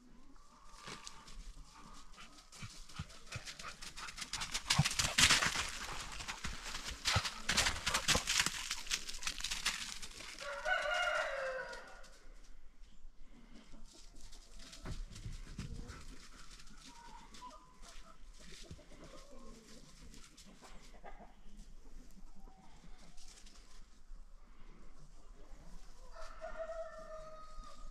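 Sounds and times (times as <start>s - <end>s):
footsteps crunching through snow: 0.8s - 12.0s
drawn-out crowing call: 9.7s - 12.1s.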